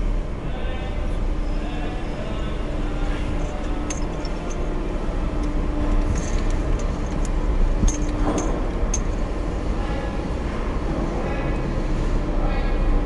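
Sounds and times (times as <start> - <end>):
low rumble inside car: 0.0 - 13.0
light clicks and clinks: 3.0 - 9.3.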